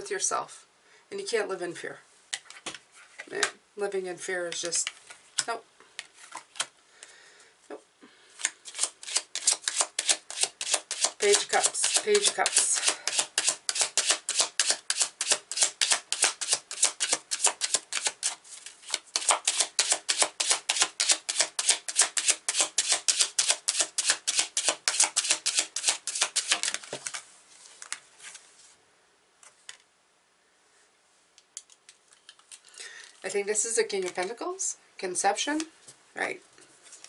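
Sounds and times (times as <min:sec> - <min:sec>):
cards being shuffled: 0:04.5 - 0:06.7, 0:08.4 - 0:28.6
soft card handling sounds: 0:04.5 - 0:06.8, 0:26.4 - 0:28.8, 0:31.4 - 0:33.3, 0:36.6 - 0:37.0.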